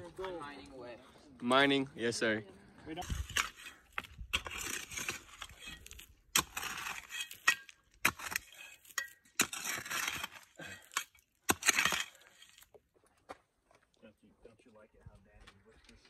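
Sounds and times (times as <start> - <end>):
hand shovel scraping gravelly soil: 2.9 - 12.8
stones clinking against blade: 4.4 - 12.7.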